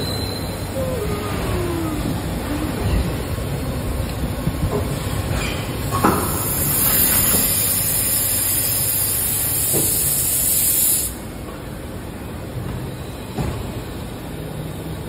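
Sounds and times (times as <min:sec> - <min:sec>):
loud hiss: 0:06.2 - 0:11.2.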